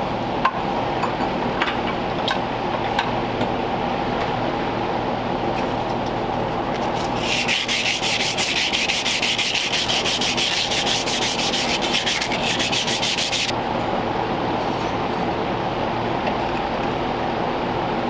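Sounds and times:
sandpaper rubbing a metal rod: 0:06.8 - 0:13.5.

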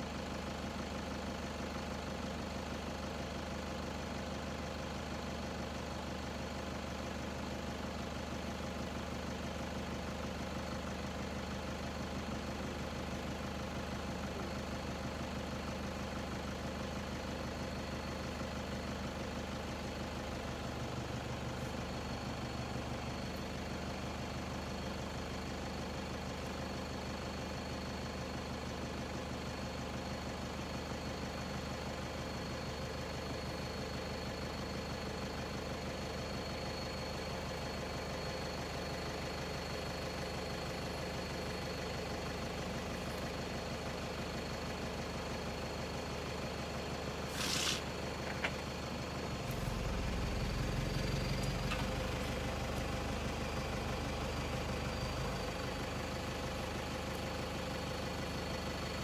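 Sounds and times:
vehicle engine idling: 0:00.0 - 0:59.0.

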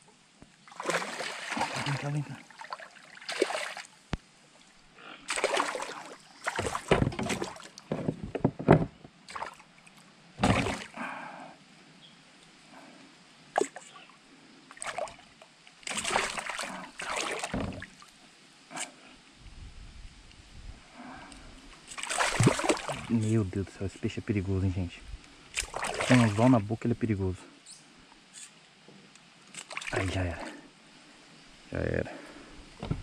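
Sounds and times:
water splashing and sloshing: 0:00.4 - 0:11.2, 0:13.5 - 0:19.0, 0:21.0 - 0:23.5, 0:25.4 - 0:26.8, 0:29.4 - 0:30.7
dull thumps: 0:06.5 - 0:09.1, 0:10.4 - 0:10.8, 0:17.4 - 0:17.9, 0:32.8 - 0:33.0.

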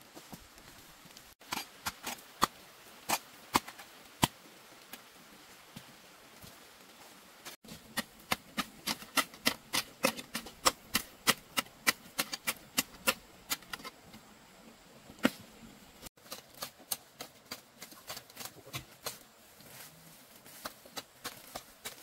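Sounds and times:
hand tool chopping wood: 0:07.7 - 0:14.0, 0:16.2 - 0:19.2, 0:20.6 - 0:22.0.

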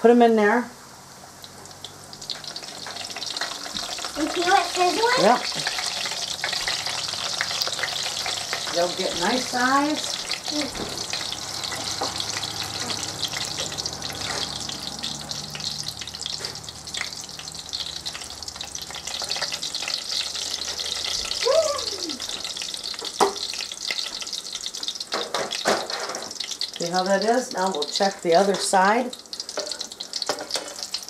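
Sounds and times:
dough sizzling in hot oil: 0:00.8 - 0:31.0.

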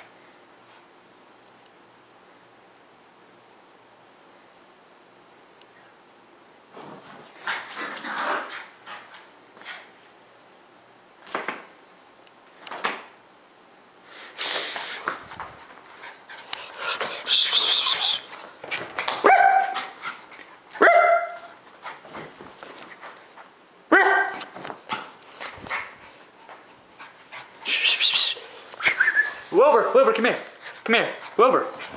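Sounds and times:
dogs scuffling: 0:14.6 - 0:23.5, 0:28.4 - 0:31.9
small dog barking: 0:19.2 - 0:19.9, 0:20.8 - 0:21.5, 0:23.9 - 0:24.5.

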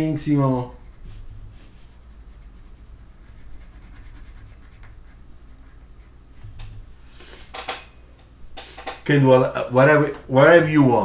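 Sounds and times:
steady low hum: 0:00.0 - 0:11.0
pencil scratching on paper: 0:00.7 - 0:06.2.

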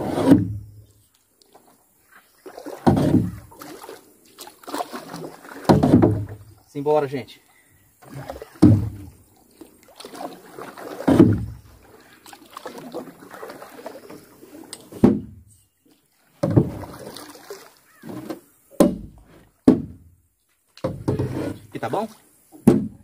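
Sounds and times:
knocks and thumps on boat: 0:00.0 - 0:00.7, 0:02.6 - 0:03.9, 0:04.6 - 0:06.5, 0:08.0 - 0:09.2, 0:10.0 - 0:11.8, 0:12.5 - 0:15.5, 0:16.4 - 0:20.1, 0:20.8 - 0:21.7, 0:22.6 - 0:23.0.

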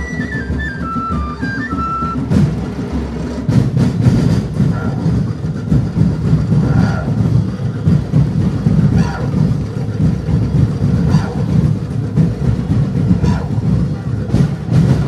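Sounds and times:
flute melody: 0:00.0 - 0:02.5
loud dense low rumble: 0:02.1 - 0:15.0.

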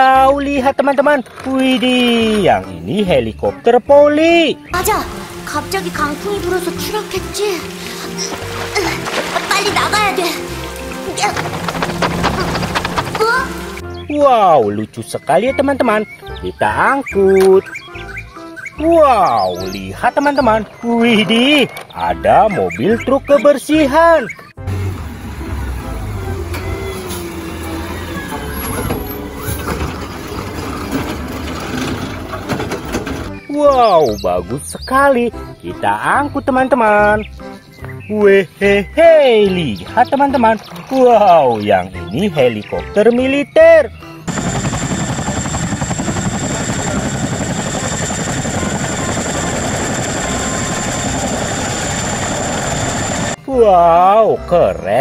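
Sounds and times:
garbage truck engine running: 0:04.8 - 0:13.9, 0:24.6 - 0:33.5, 0:44.3 - 0:53.4
helicopter rotors beating: 0:04.8 - 0:14.0, 0:44.2 - 0:53.4
hydraulic arm whine: 0:44.3 - 0:53.4.

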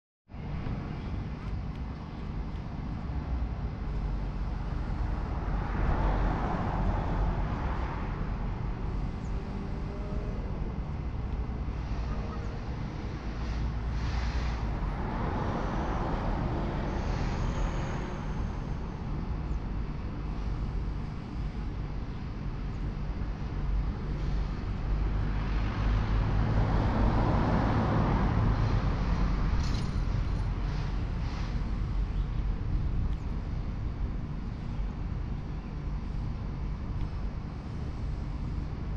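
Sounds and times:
steady low rumble: 0:00.3 - 0:38.9
vehicle passing by: 0:03.4 - 0:10.8, 0:11.7 - 0:19.5, 0:24.2 - 0:32.1
vehicle passing: 0:25.1 - 0:31.9.

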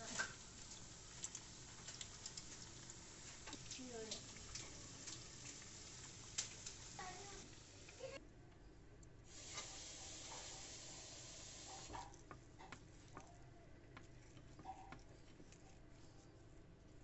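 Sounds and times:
food frying in hot oil: 0:00.0 - 0:08.2, 0:09.3 - 0:12.1.

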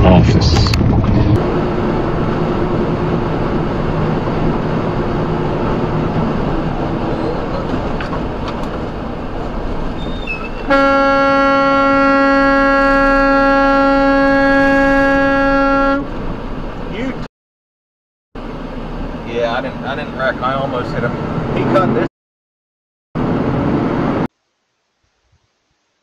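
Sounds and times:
truck road and engine noise: 0:00.5 - 0:17.3, 0:18.4 - 0:22.1, 0:23.2 - 0:24.3
truck horn held note: 0:10.7 - 0:16.1.

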